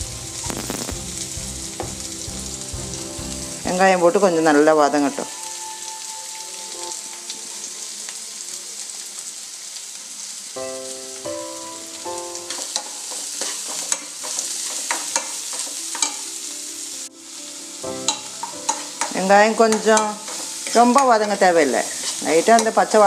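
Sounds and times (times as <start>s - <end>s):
onions sizzling in hot oil: 0.0s - 23.0s
spatula scraping a pan: 12.5s - 16.2s, 18.1s - 23.0s.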